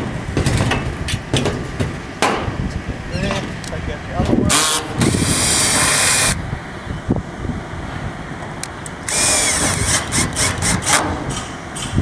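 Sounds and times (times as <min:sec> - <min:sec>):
cordless drill running: 0:05.1 - 0:06.4, 0:09.0 - 0:10.9
drill clutch clicks: 0:09.0 - 0:11.9.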